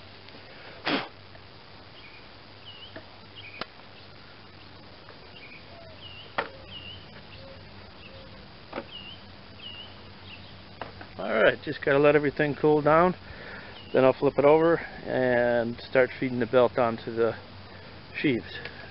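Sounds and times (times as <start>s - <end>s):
hissing crackle: 0.0s - 18.9s
small birds chirping: 1.8s - 11.2s, 13.2s - 14.6s.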